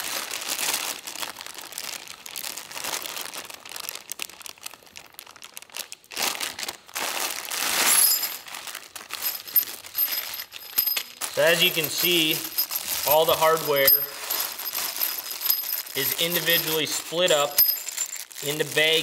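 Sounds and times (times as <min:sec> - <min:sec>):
plastic bags crinkling: 0:00.0 - 0:19.0
metal hardware clinking: 0:09.2 - 0:18.2.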